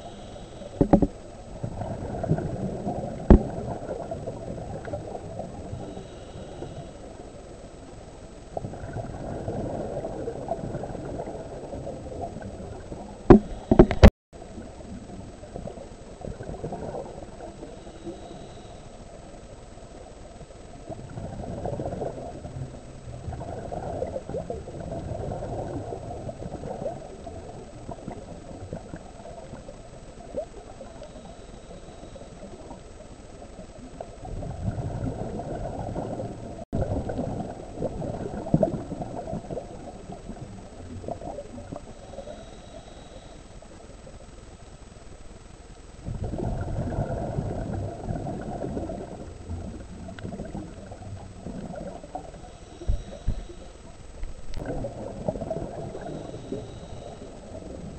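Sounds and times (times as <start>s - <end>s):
underwater bubbles gurgling: 0.0s - 57.9s.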